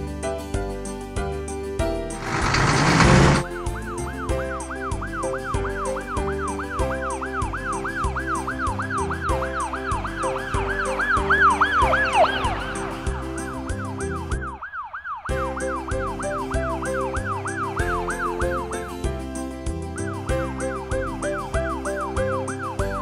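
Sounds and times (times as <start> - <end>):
bouncy children's music: 0.0 - 14.6, 15.3 - 23.0
loud burst of noise: 2.2 - 3.5
ambulance siren wailing: 2.4 - 18.6.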